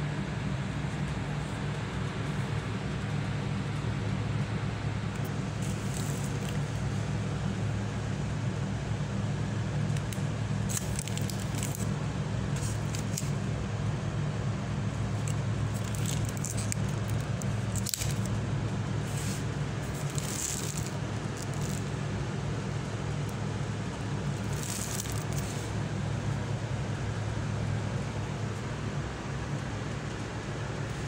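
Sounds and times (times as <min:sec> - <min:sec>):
steady low hum: 0:00.0 - 0:31.0
rustling and crackling: 0:05.2 - 0:07.1, 0:10.7 - 0:11.9, 0:12.6 - 0:13.4, 0:14.9 - 0:22.2, 0:24.3 - 0:25.8.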